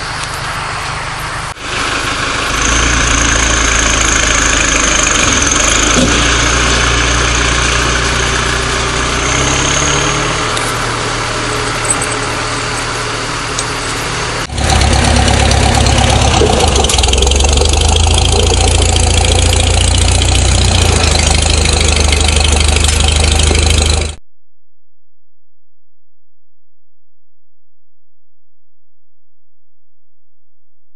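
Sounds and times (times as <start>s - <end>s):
tractor engine running: 0.0s - 24.2s.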